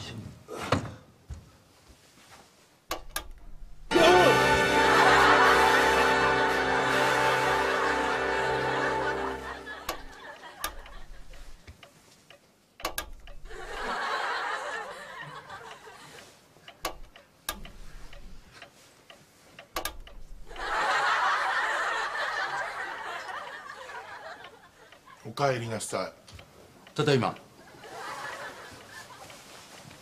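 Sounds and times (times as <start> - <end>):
sharp clicks and knocks: 2.9 - 3.8, 9.9 - 13.5, 16.7 - 18.8, 19.6 - 20.5
studio audience laughing: 4.0 - 11.4, 13.5 - 16.2, 20.5 - 25.2, 27.6 - 29.4.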